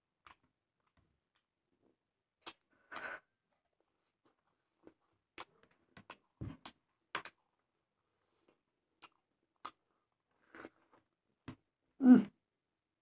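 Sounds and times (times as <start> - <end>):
wet chewing and lip-smacking: 2.4 - 3.2, 4.1 - 7.6, 8.2 - 11.2.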